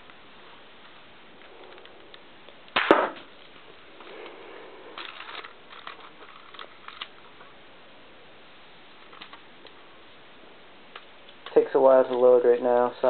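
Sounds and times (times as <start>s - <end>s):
loud sharp snap with clatter: 2.7s - 3.3s
plastic toy gun clicks and rattles: 5.0s - 7.2s.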